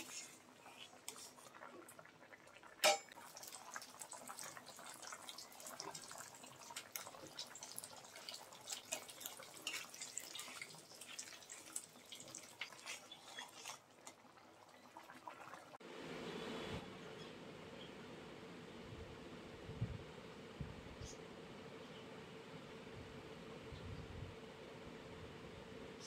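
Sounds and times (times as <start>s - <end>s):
ladle stirring pot: 0.0s - 2.0s, 2.8s - 15.7s
curry bubbling in pot: 0.0s - 15.8s.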